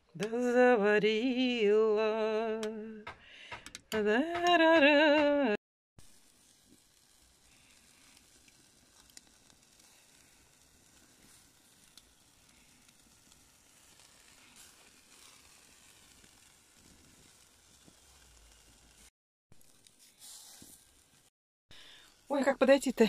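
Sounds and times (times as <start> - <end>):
charcoal popping: 6.0 - 23.0
food sizzling on a grill: 6.0 - 23.0.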